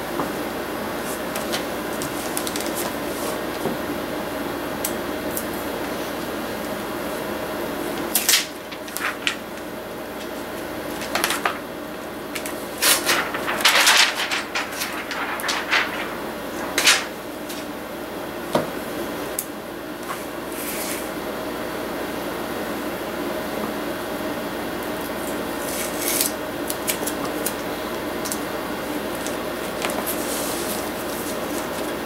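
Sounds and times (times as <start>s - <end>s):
steady low hum: 0.0s - 19.2s.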